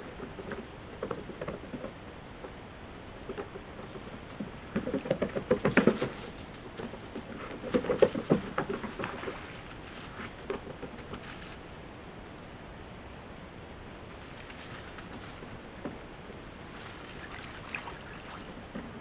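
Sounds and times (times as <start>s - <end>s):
paws pattering on wooden planks: 3.3s - 11.6s.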